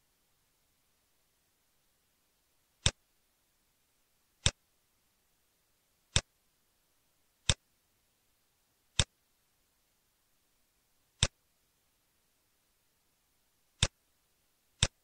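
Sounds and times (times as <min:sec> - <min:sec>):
computer mouse clicks: 0:14.8 - 0:15.0.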